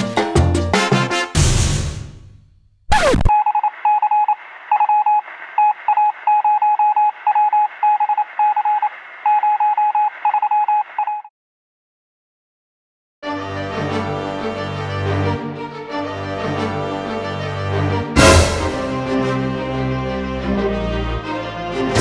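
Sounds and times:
radio static hiss: 0:02.9 - 0:06.4, 0:07.1 - 0:09.4
morse code beeping: 0:03.2 - 0:11.3.

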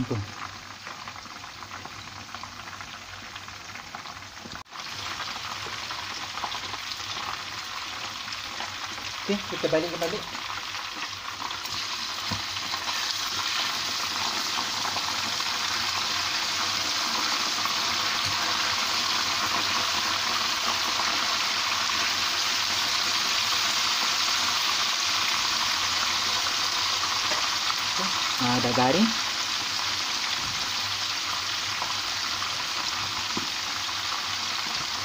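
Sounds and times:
chicken sizzling in oil: 0:00.0 - 0:35.0.

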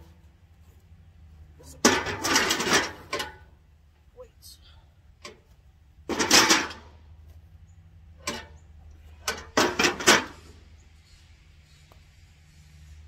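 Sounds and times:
weight plates clanking on metal: 0:01.8 - 0:03.5, 0:06.1 - 0:07.0, 0:08.2 - 0:10.6.

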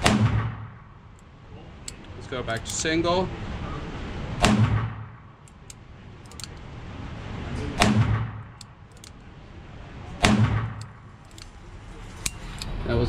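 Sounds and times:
revolver shots: 0:04.4 - 0:05.2, 0:07.8 - 0:08.6, 0:10.2 - 0:11.1
light clicks: 0:05.4 - 0:06.7, 0:08.5 - 0:09.3, 0:10.8 - 0:11.6.

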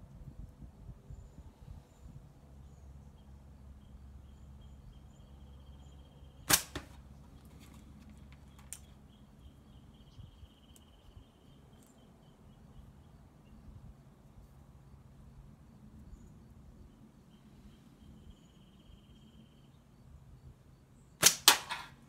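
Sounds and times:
slingshot bands cracking: 0:06.5 - 0:07.0, 0:21.2 - 0:22.0.

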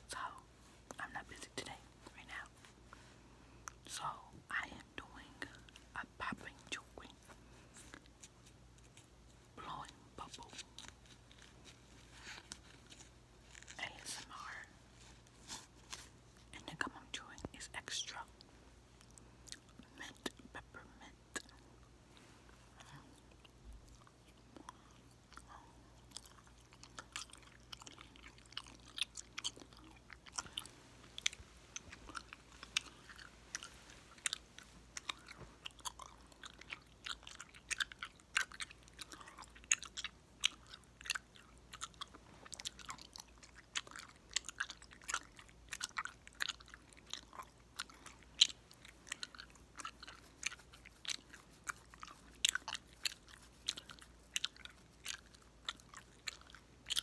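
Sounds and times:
gum chewed wetly with pops: 0:18.9 - 0:20.5, 0:22.7 - 0:57.0.

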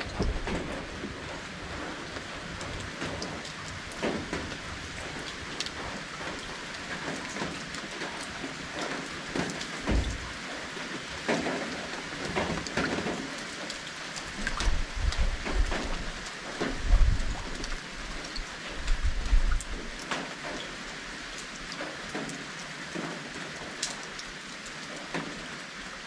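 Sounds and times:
rain falling steadily: 0:00.0 - 0:26.0.

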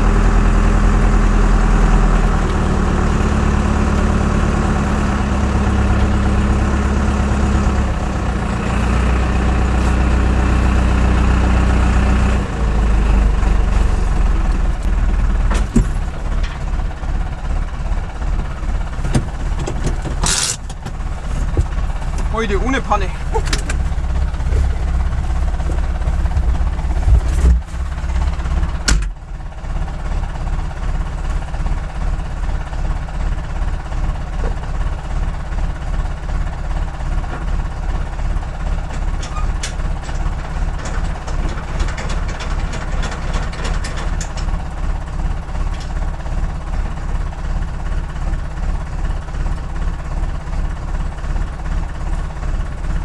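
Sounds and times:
tractor diesel engine idling: 0:00.0 - 0:53.0
clunks: 0:13.3 - 0:29.2, 0:38.5 - 0:46.8.

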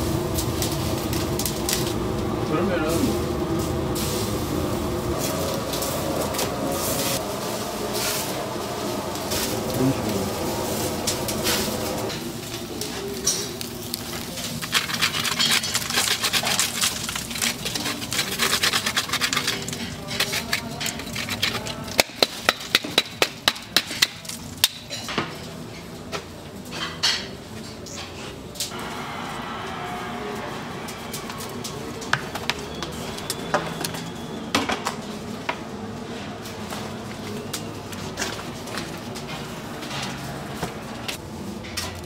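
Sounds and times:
meat crackling on grill: 0:00.0 - 0:02.0, 0:03.6 - 0:25.0.

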